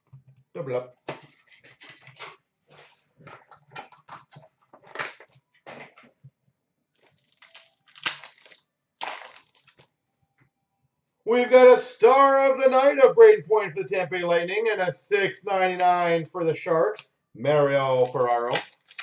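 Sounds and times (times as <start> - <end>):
cards rustling: 1.1 - 3.0, 7.0 - 9.8, 17.8 - 19.0
foil wrappers crinkling and ripping: 1.3 - 3.0, 7.0 - 9.9, 17.8 - 19.0.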